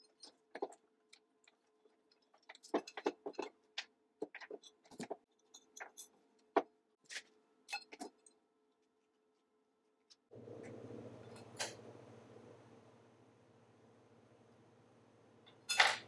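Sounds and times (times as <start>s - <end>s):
faint steady hum: 10.3s - 16.0s.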